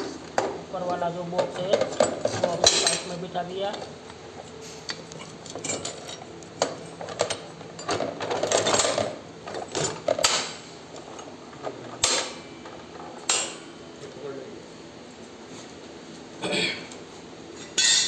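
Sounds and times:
metal parts clinking and rattling: 0:05.0 - 0:10.5.

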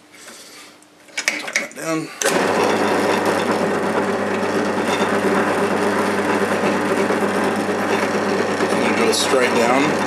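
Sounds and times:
drill press boring into wood: 0:02.2 - 0:10.0.

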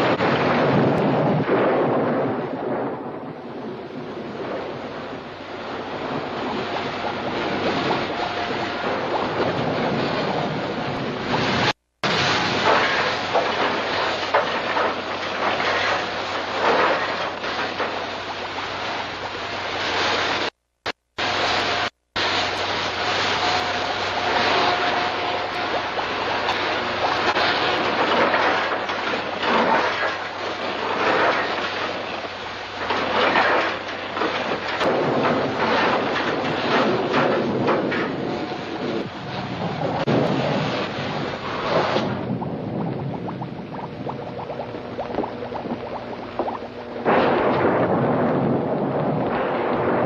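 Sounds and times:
heavy rain: 0:00.0 - 0:50.0
low hum: 0:00.0 - 0:50.0
wind: 0:00.0 - 0:50.0
hissing rush of noise: 0:05.0 - 0:33.2.

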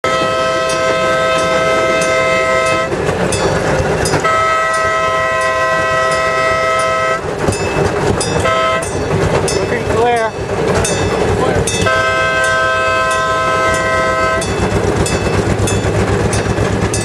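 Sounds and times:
two-note horn blasts: 0:00.0 - 0:02.9, 0:04.2 - 0:07.2, 0:08.4 - 0:09.0, 0:11.8 - 0:14.6.

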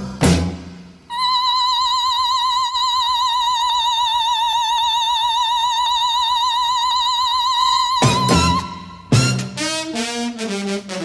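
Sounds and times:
person singing high operatic note: 0:01.1 - 0:09.1.

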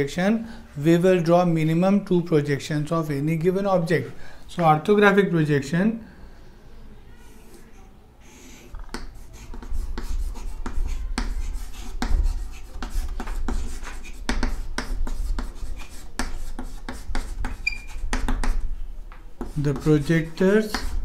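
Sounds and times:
chalk scratching on chalkboard: 0:08.2 - 0:18.7, 0:19.4 - 0:21.0.

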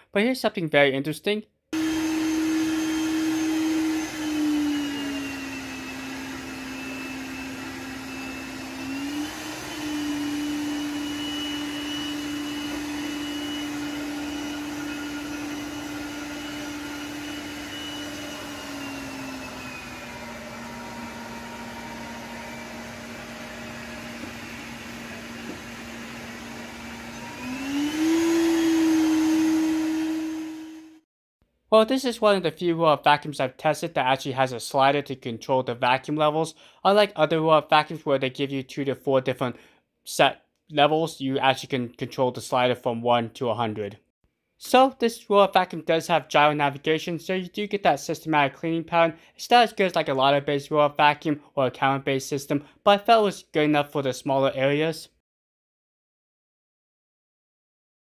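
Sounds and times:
robot vacuum suction motor humming: 0:01.8 - 0:31.0.

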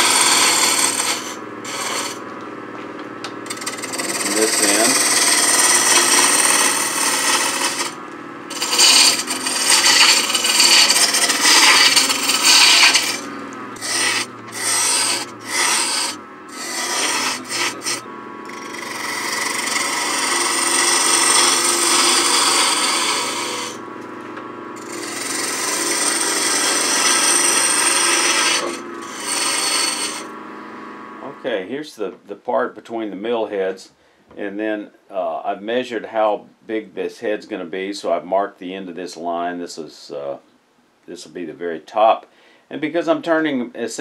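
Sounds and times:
gouge cutting wood on lathe: 0:00.0 - 0:31.5.

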